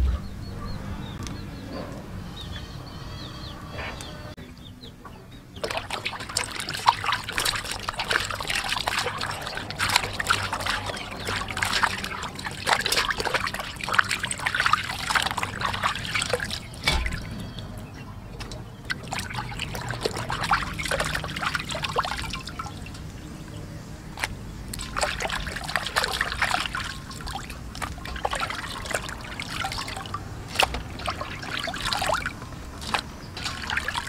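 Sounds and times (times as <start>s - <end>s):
hands scrubbing skin in water: 5.6s - 34.0s
water splashing in a basin: 5.6s - 34.0s.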